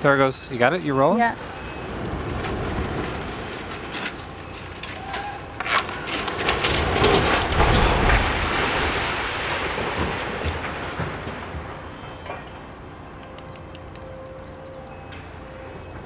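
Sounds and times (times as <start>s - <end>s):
smokestack crashing rumble: 0.0s - 13.2s
sharp cracks: 2.0s - 12.5s.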